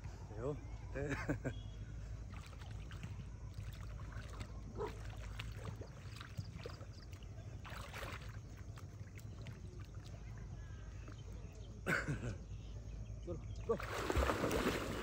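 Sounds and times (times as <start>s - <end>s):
water splashing and lapping: 1.8s - 11.6s, 13.6s - 15.0s.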